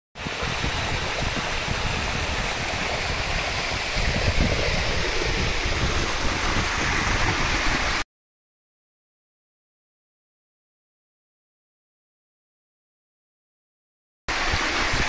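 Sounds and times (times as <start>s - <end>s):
water rushing over rocks: 0.2s - 8.0s, 14.3s - 15.0s
wind rumble on microphone: 0.2s - 8.0s, 14.3s - 15.0s.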